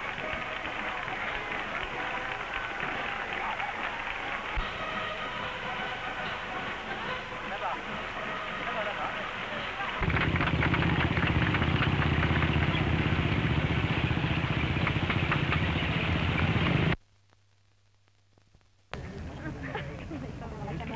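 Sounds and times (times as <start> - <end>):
track clatter: 5.6 - 17.0
tracked vehicle engine rumble: 8.2 - 17.0.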